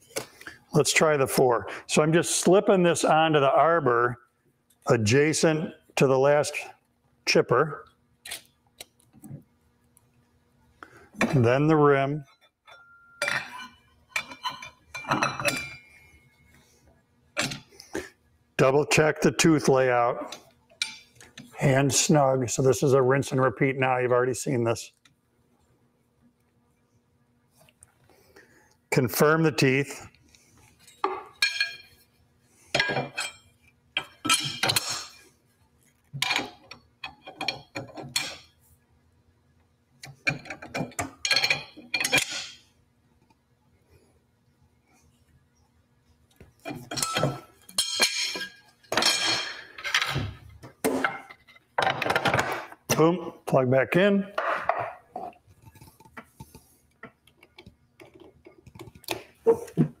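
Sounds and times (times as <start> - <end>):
wrenches clanking on metal: 32.8 - 35.1, 40.3 - 42.6, 46.6 - 50.3.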